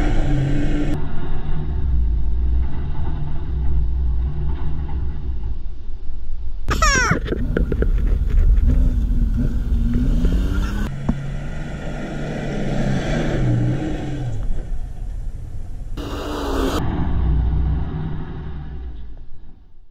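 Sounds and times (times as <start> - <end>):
truck engine revving: 0.0 - 5.2, 7.3 - 19.4
wind rumble on microphone: 7.2 - 11.2.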